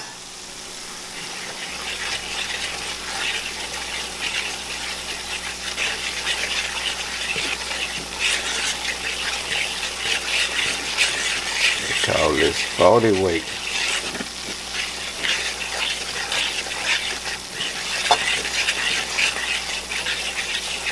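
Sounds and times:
grease sizzling in a skillet: 0.0 - 20.9
fork stirring: 1.1 - 20.9.

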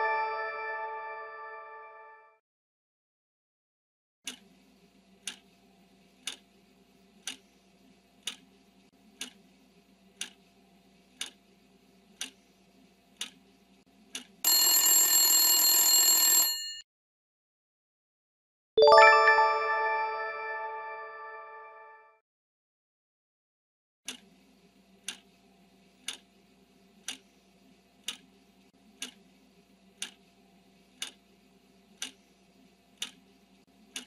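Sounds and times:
bright chime: 0.0 - 1.9, 18.8 - 21.6
clock ticking: 5.2 - 5.5, 6.2 - 6.5, 7.2 - 7.4, 8.2 - 8.5, 9.2 - 9.4, 11.2 - 11.4, 12.2 - 12.4, 13.2 - 13.4, 24.1 - 24.3, 26.0 - 26.3, 27.0 - 27.2, 28.0 - 28.3, 29.0 - 29.2, 30.0 - 30.2, 31.0 - 31.2, 32.0 - 32.2, 33.0 - 33.2.

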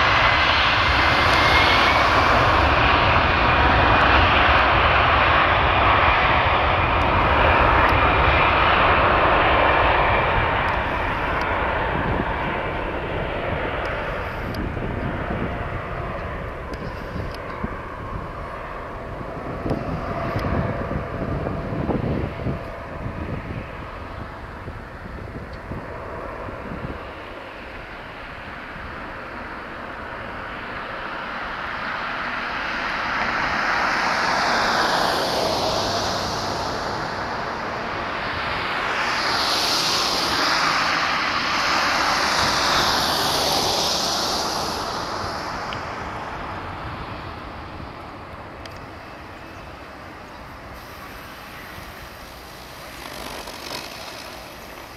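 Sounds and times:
jet engines at takeoff: 0.0 - 54.9.

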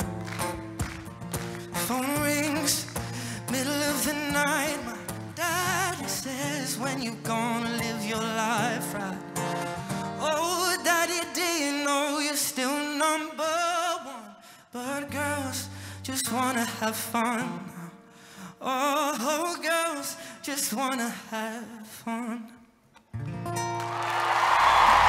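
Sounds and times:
audience applause and cheering: 0.0 - 2.0, 23.7 - 25.0
acoustic guitar: 0.0 - 24.2
young man singing with vibrato: 1.7 - 22.7.

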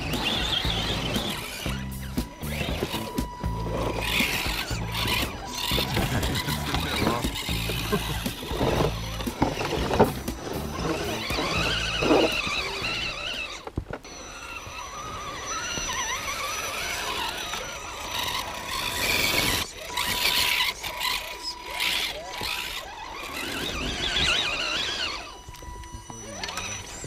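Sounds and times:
electric motors whining: 0.0 - 27.0
thin steady high tone: 0.0 - 27.0.

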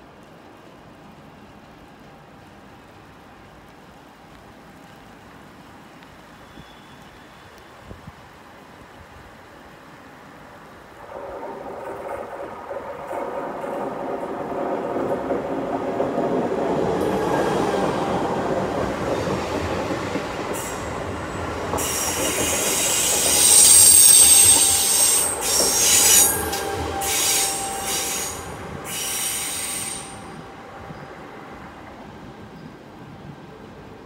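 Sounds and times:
train wheels rumbling: 10.8 - 34.0
high-pitched wheel squeal: 21.8 - 30.4.

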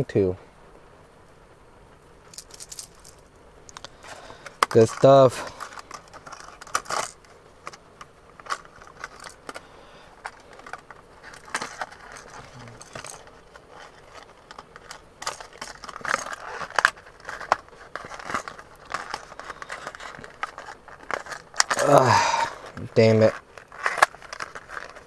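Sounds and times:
light metallic jingling: 2.3 - 3.3, 4.0 - 22.2
plastic packaging clicks and crinkles: 2.4 - 25.0.

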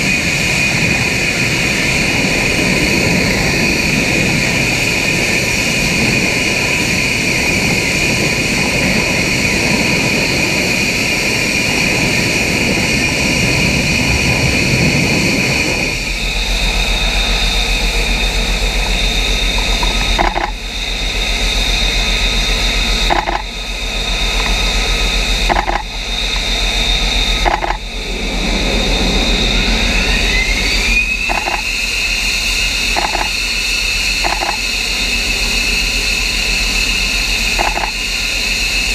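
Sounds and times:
jet engine roar with high whine: 0.0 - 38.9
low hum: 11.4 - 38.9.

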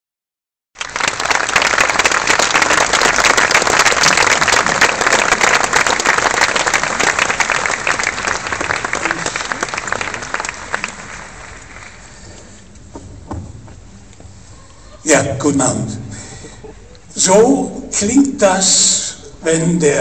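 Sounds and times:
audience applauding: 0.8 - 12.5.

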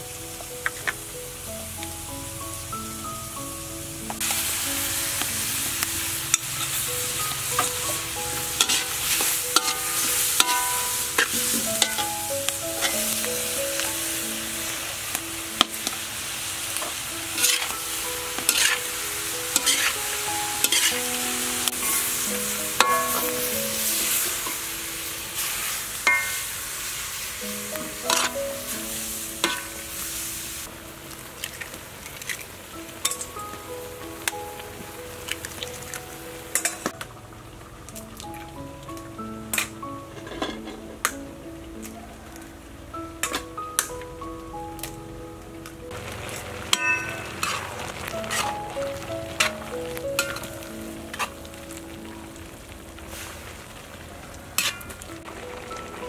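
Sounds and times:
food sizzling in a wok: 0.0 - 45.2, 45.8 - 56.0
metal spatula scraping a pan: 8.6 - 12.2, 17.3 - 17.8, 18.4 - 21.0, 27.8 - 28.4, 39.6 - 41.0, 46.7 - 48.6, 54.6 - 55.0.

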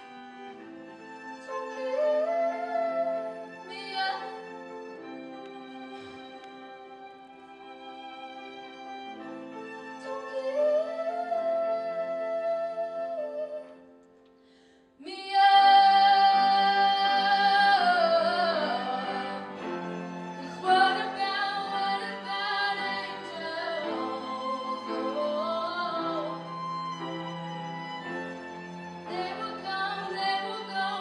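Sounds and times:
cello: 0.0 - 14.0, 15.0 - 31.0
violin: 0.0 - 14.4, 15.0 - 31.0
grand piano: 0.0 - 31.0
woman singing into a microphone: 1.5 - 4.5, 15.0 - 19.6, 20.4 - 26.4, 29.1 - 31.0.

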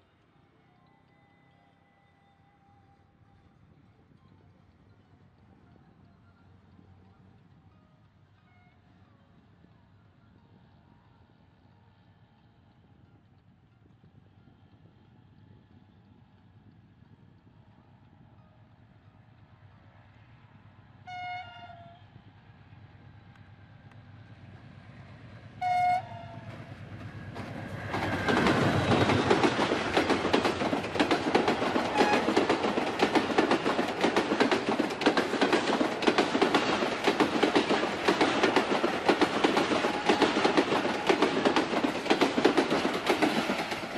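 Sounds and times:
train passing with rumble: 8.5 - 43.9
locomotive horn blasts: 25.6 - 26.5, 31.9 - 32.4
wheels clattering over rail joints: 27.3 - 43.9.

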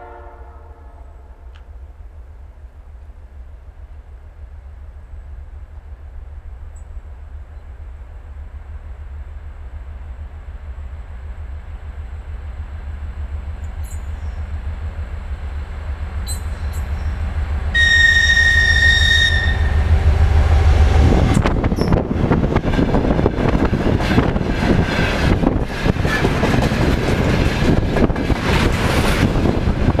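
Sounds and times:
locomotive horn blast: 0.0 - 1.4, 17.7 - 20.0
locomotive engine rumble: 0.6 - 30.0
train wheels rushing: 13.3 - 30.0.

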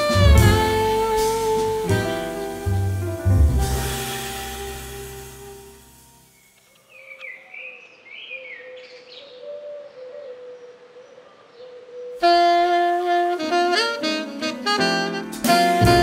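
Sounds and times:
loud jazz with saxophone: 0.0 - 6.4, 12.2 - 16.0
steady low tone: 0.0 - 6.6
faint bird chirps: 6.3 - 12.3.

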